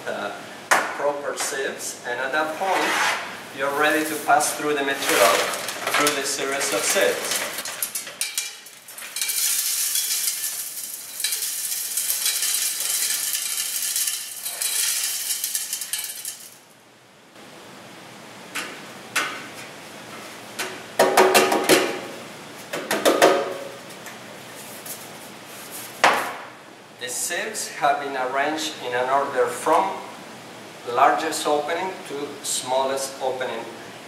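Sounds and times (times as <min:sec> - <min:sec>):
gravel and sand pouring: 0:03.6 - 0:16.6.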